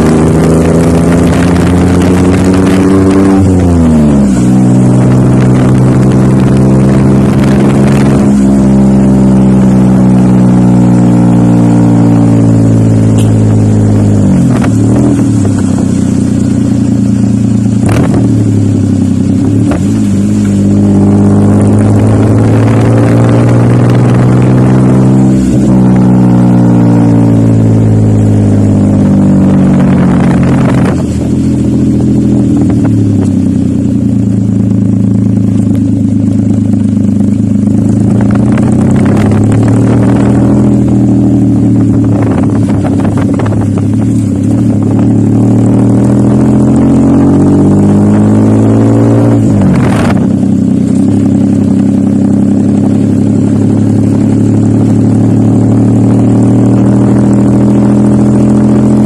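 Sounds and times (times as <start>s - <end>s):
small engine revving: 0.0s - 8.9s.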